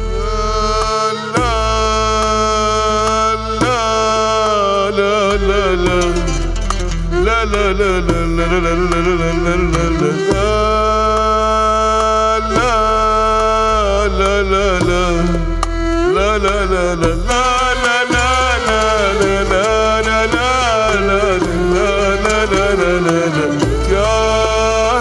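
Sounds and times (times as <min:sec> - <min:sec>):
keyboard: 0:00.0 - 0:25.0
oud: 0:00.0 - 0:25.0
steady bass line: 0:00.0 - 0:25.0
violin: 0:00.0 - 0:25.0
hand drum: 0:00.8 - 0:13.2, 0:14.2 - 0:25.0.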